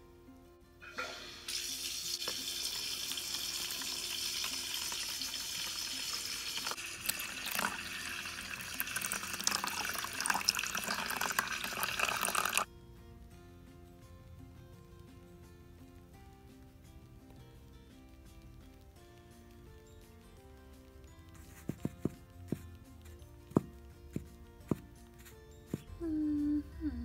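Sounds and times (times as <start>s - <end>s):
water pouring into toy bathtub: 1.5s - 12.7s.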